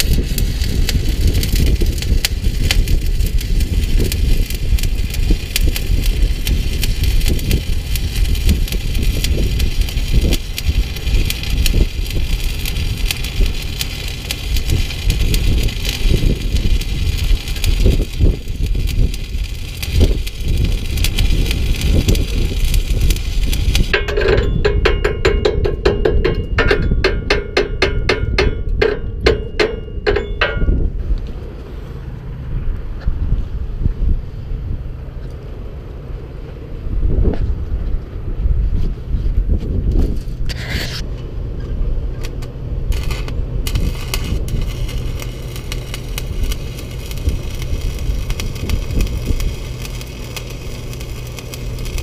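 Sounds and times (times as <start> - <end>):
arc welding crackle: 0.0 - 30.9, 42.1 - 52.0.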